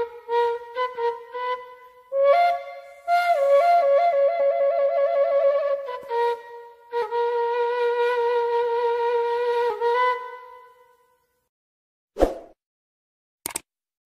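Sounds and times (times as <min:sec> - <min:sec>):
flute long notes with vibrato: 0:00.0 - 0:11.0.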